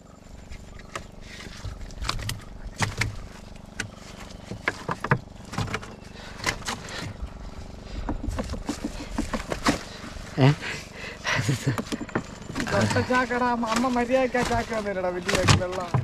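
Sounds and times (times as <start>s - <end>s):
low hum: 0.0s - 16.0s
cloth rustling: 3.1s - 16.0s
knocks on wooden hull: 8.0s - 9.9s.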